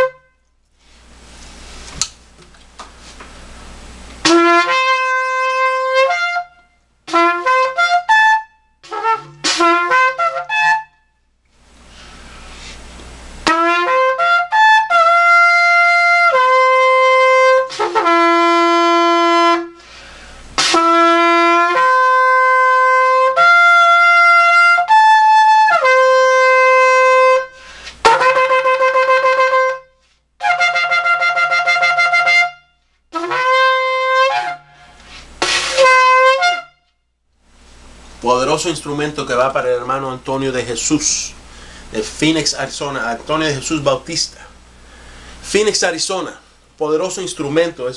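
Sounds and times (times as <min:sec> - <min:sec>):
shofar blasts: 0:00.0 - 0:00.6, 0:04.2 - 0:11.2, 0:13.4 - 0:19.9, 0:20.6 - 0:37.0.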